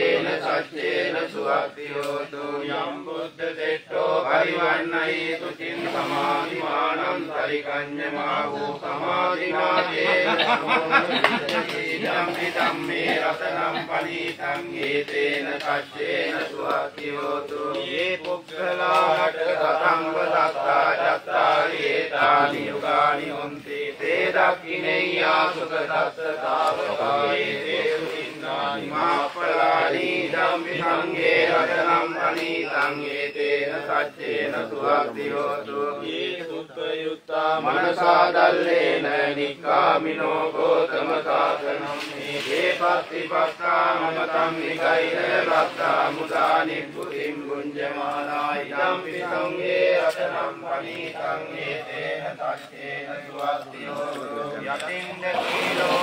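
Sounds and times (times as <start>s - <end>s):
steady recited chant: 0.0s - 56.0s.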